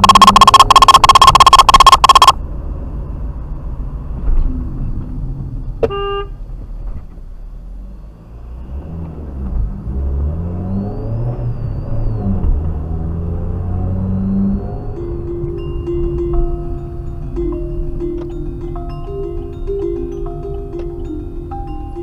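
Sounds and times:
car engine and tyres rumbling: 0.0 - 22.0
car horn toot: 5.8 - 6.4
music: 15.0 - 22.0.

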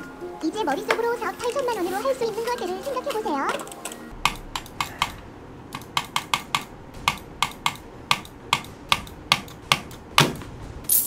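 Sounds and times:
computer keyboard typing: 2.6 - 10.0.

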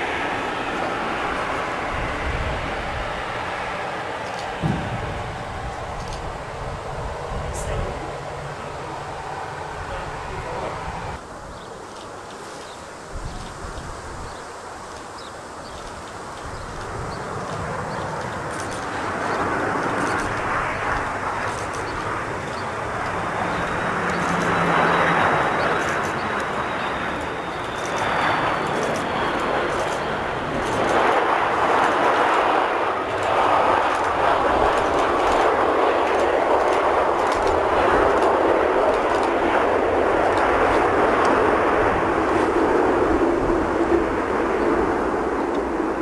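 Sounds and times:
jet airliner engine rushing: 0.0 - 46.0
low rumble: 4.6 - 8.0.

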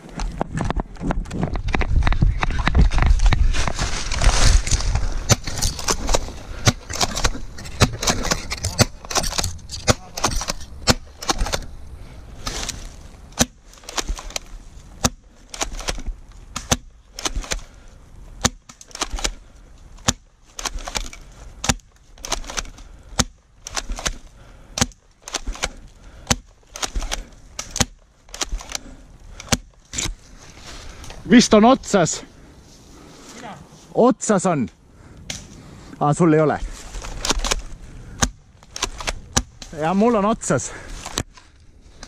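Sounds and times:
dry leaves rustling underfoot: 3.0 - 10.8, 11.6 - 14.9.

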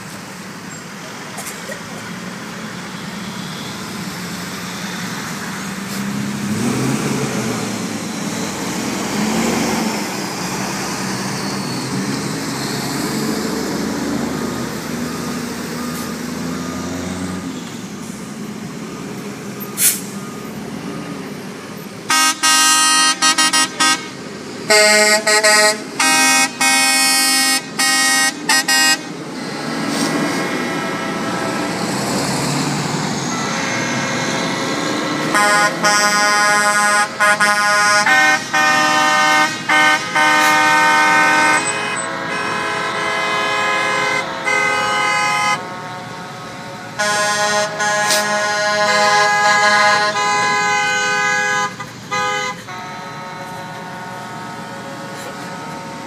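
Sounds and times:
truck engines running: 0.0 - 56.0
truck air horns blasting: 22.0 - 56.0.

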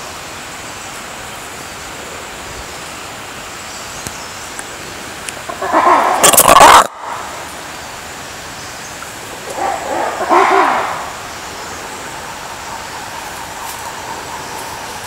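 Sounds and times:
steady background hiss: 0.0 - 15.0
lemur giving harsh call: 5.4 - 7.6, 9.2 - 15.0.

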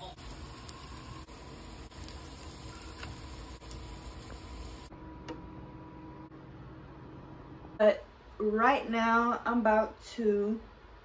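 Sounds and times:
faint sizzling in a frying pan: 0.0 - 4.9.

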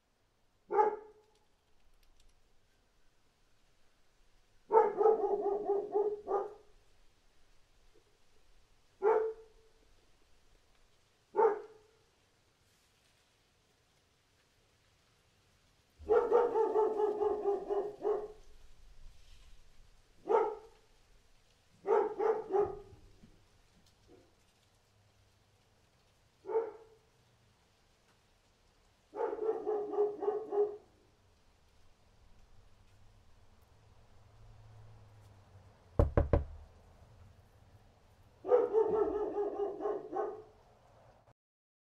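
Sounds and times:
dog barking: 0.7 - 1.2, 4.7 - 6.8, 9.0 - 9.7, 11.3 - 12.0, 16.0 - 18.6, 20.2 - 20.8, 21.8 - 23.1, 26.4 - 27.1, 29.1 - 31.0, 38.4 - 40.6
sharp knocks: 36.0 - 36.6.

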